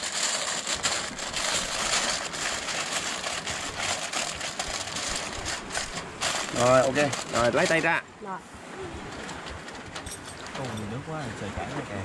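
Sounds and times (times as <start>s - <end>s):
aluminium foil crinkling: 0.0s - 8.0s.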